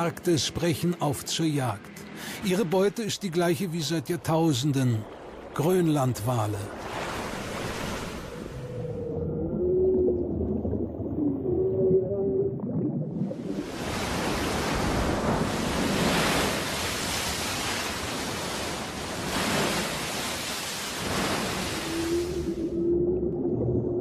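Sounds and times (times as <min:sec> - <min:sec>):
sea water rushing: 0:00.0 - 0:24.0
whale spouting: 0:07.1 - 0:23.0
whale calling: 0:08.0 - 0:14.2, 0:21.2 - 0:24.0.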